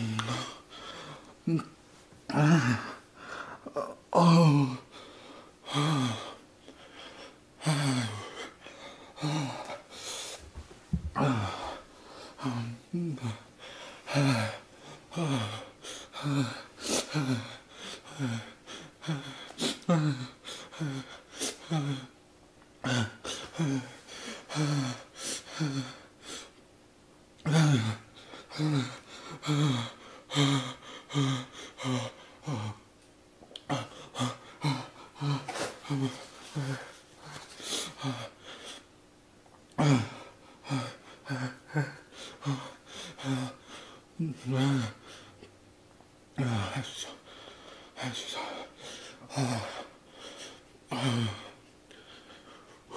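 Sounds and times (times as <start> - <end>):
man panting and groaning: 0.0 - 10.4, 11.0 - 22.2, 22.8 - 26.6, 27.4 - 32.9, 33.6 - 38.9, 39.7 - 45.5, 46.4 - 52.9
man groaning in pain: 1.5 - 3.0, 3.6 - 4.9, 11.2 - 11.8, 44.2 - 45.0.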